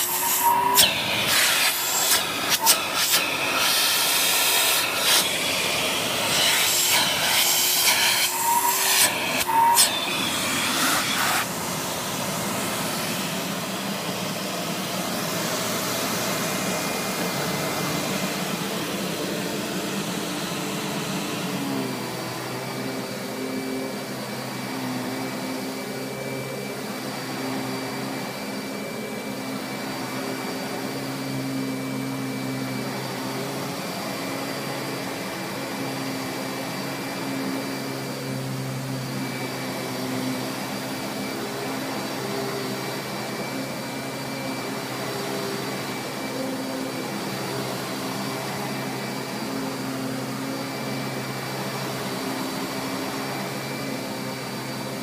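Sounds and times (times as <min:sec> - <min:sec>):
upright vacuum running on carpet: 0:00.0 - 0:55.0.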